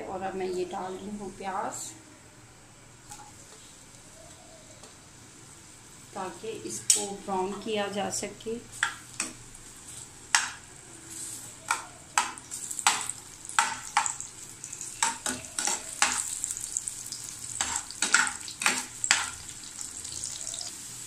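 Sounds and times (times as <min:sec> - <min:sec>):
onions sizzling in hot oil: 0:08.7 - 0:21.0.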